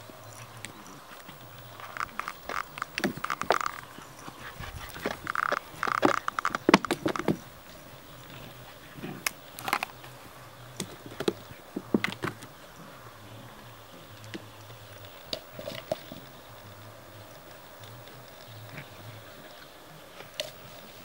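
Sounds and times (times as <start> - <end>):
puppies scuffling and snuffling: 0.0 - 21.0.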